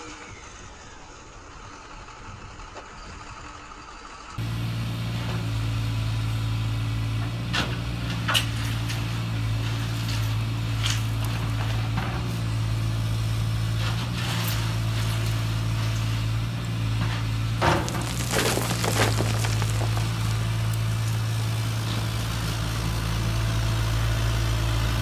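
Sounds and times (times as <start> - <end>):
toy bucket scraping sand: 17.6 - 22.0.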